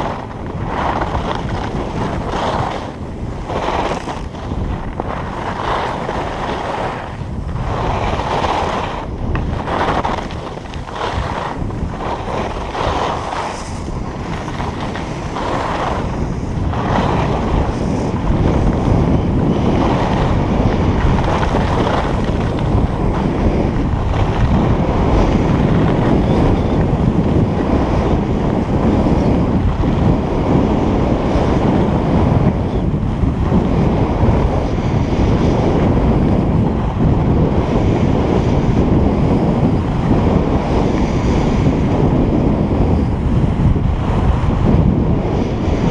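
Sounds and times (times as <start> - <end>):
skis rasping on snow: 0.0 - 32.4
wind buffeting microphone: 0.0 - 45.9.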